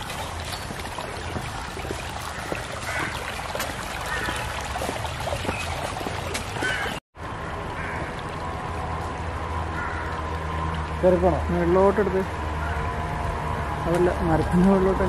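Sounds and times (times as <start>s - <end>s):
water running in a channel: 0.0s - 7.0s, 7.7s - 12.1s.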